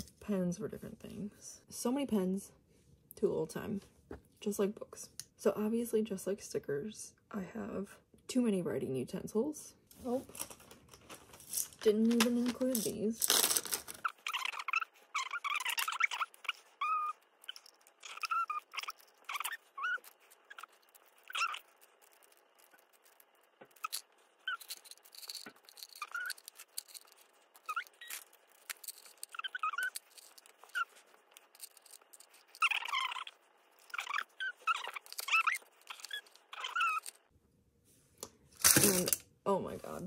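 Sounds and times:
plastic pens clicking and clattering: 0:10.3 - 0:37.2, 0:38.6 - 0:39.2.

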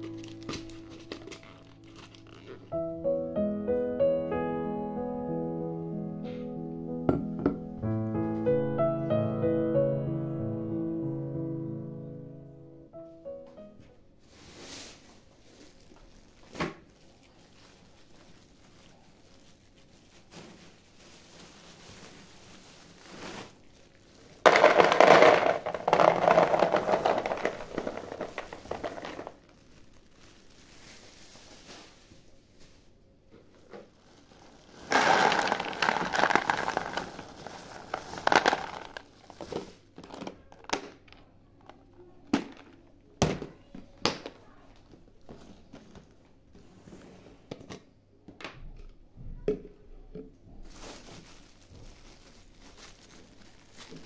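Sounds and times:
plastic bag crinkling: 0:00.0 - 0:02.8, 0:14.3 - 0:32.9, 0:33.5 - 0:40.8, 0:50.6 - 0:54.0
nuts pouring into plastic tub: 0:23.2 - 0:30.4, 0:33.9 - 0:40.3.

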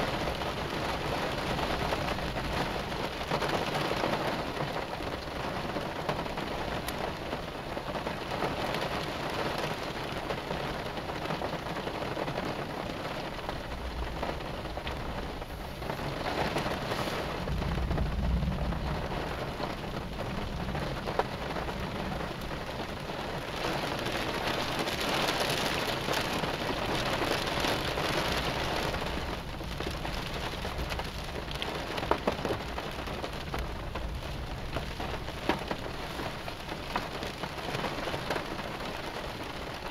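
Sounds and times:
heavy rain falling: 0:00.0 - 0:39.9
low rumble of thunder: 0:12.0 - 0:36.5.

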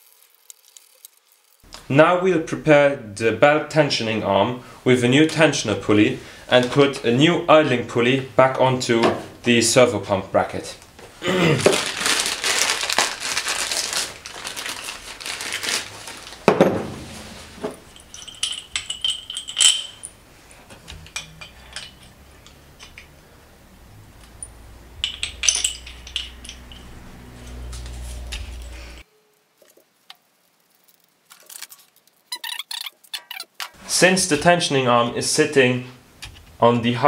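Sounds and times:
plastic packaging crinkling: 0:00.0 - 0:01.6, 0:11.6 - 0:20.1, 0:29.6 - 0:33.8
metal parts clinking on workbench: 0:17.6 - 0:23.1, 0:24.2 - 0:29.0.

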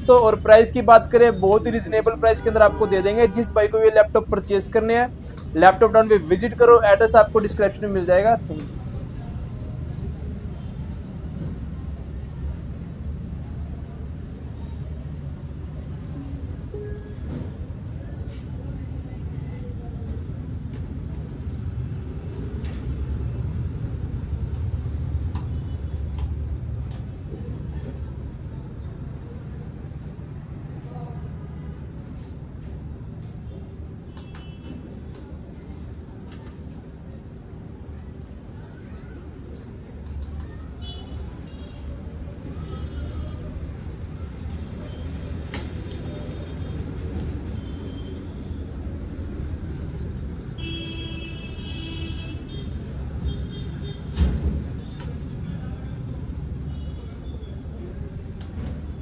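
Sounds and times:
background traffic rumble: 0:00.0 - 0:59.0.

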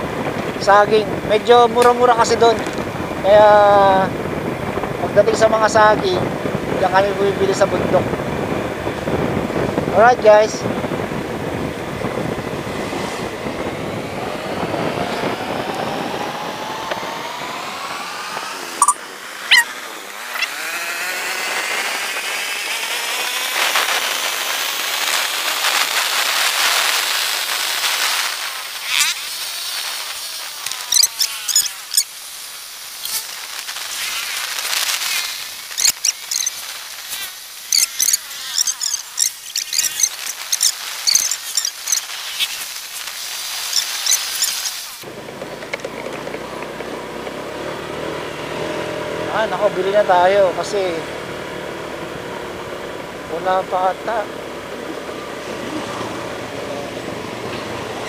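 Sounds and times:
wind and road noise: 0:00.0 - 0:58.0
scooter engine accelerating: 0:10.6 - 0:43.1, 0:43.7 - 0:58.0
high chirping squeaks: 0:18.8 - 0:19.7, 0:20.3 - 0:20.6, 0:30.7 - 0:32.1, 0:35.0 - 0:42.6, 0:43.6 - 0:44.8
short high-pitched sounds: 0:18.8 - 0:19.7.

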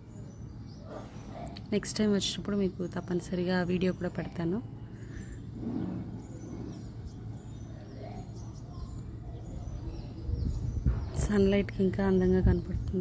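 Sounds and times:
small birds chirping: 0:00.0 - 0:13.0
steady low hum: 0:00.0 - 0:13.0.

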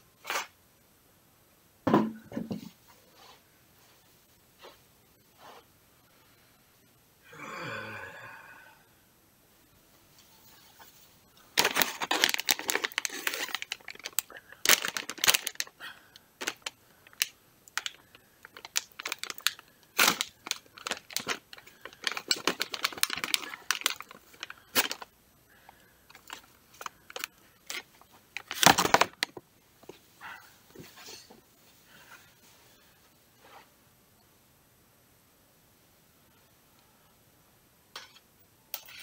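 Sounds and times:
plastic bag crinkling: 0:11.4 - 0:15.8, 0:16.4 - 0:25.1, 0:26.1 - 0:29.4.

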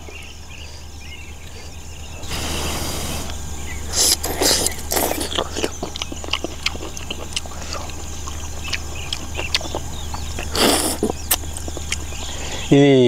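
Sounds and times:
slurping suck: 0:02.2 - 0:08.0, 0:10.4 - 0:12.7
wet chewing and smacking: 0:03.2 - 0:12.7.

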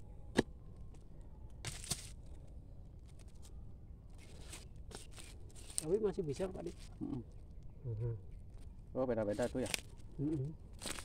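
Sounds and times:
faint low rumble: 0:06.7 - 0:09.1.

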